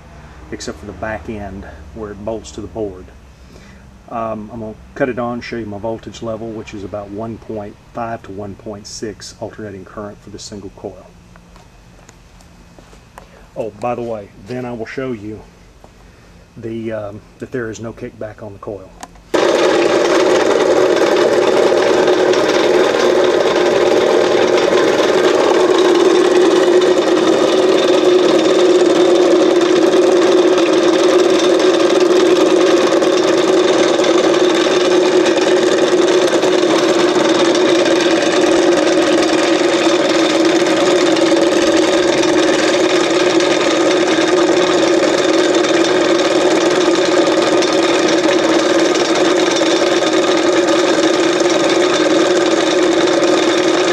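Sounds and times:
motor whirring: 19.1s - 53.9s.

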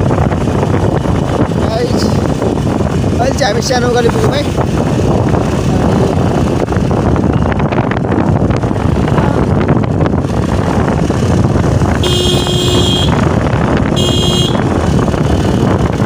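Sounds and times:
motorcycle engine running: 0.0s - 16.0s
wind buffeting microphone: 0.0s - 16.0s
horn beeping: 12.0s - 13.3s, 13.9s - 14.7s.

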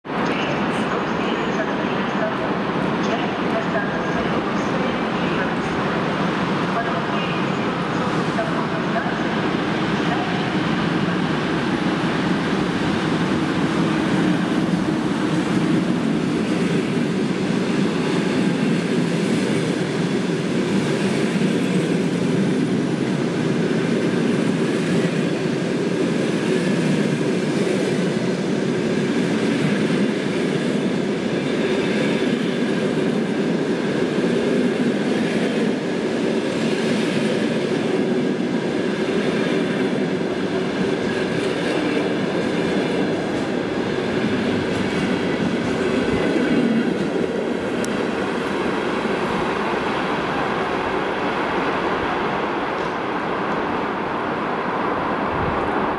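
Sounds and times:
train wheels on rails: 0.1s - 55.9s.

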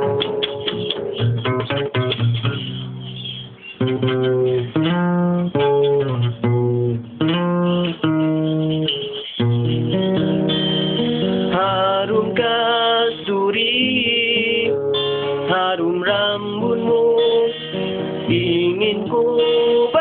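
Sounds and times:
acoustic guitar strumming chords: 0.0s - 20.0s.

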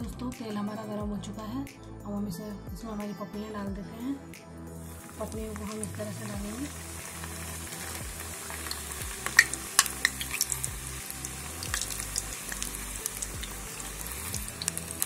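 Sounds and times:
dough sizzling in hot oil: 4.8s - 15.0s
crackling pops in oil: 7.7s - 10.7s, 11.6s - 15.0s.

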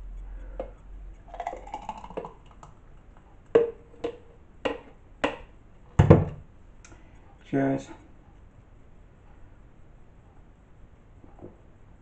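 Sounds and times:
plastic jug knocking: 3.6s - 6.4s.

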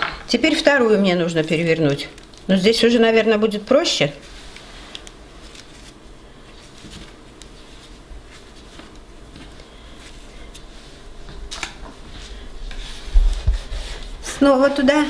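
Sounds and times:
towel and paper handling: 4.1s - 11.6s.

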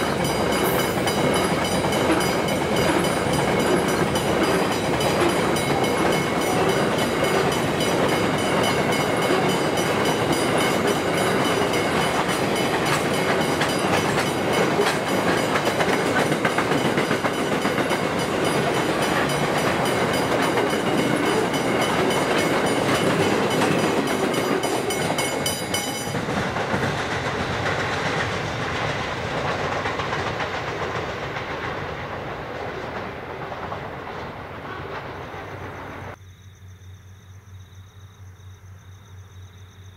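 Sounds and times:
crossing warning bell ringing: 0.0s - 26.4s
freight train wheels rolling: 0.0s - 36.2s.

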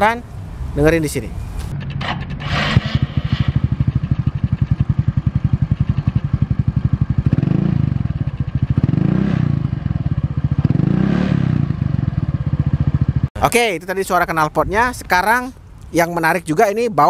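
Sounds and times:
scooter engine idling and revving: 1.6s - 13.3s.

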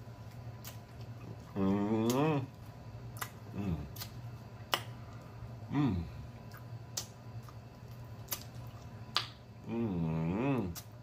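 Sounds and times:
wet mouth smacks: 0.6s - 5.2s, 6.4s - 9.4s
man humming mm: 1.4s - 2.6s, 3.5s - 4.1s, 5.7s - 6.3s, 9.6s - 10.9s.

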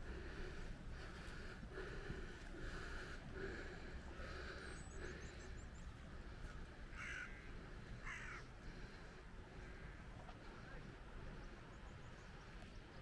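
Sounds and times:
crow cawing: 6.9s - 8.5s.

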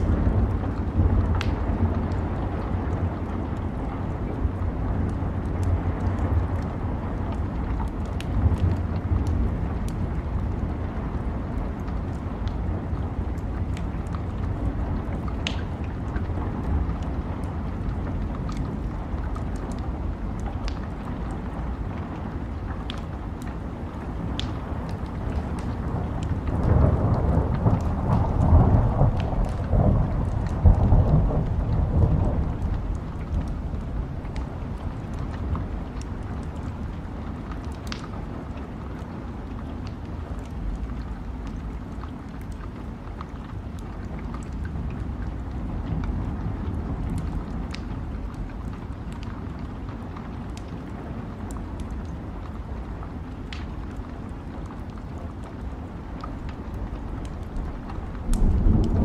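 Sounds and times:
steady rain: 0.0s - 59.0s
wood fire crackling: 0.0s - 59.0s
thunder rumbling: 23.8s - 37.0s, 55.6s - 59.0s
low rumble: 56.3s - 59.0s.

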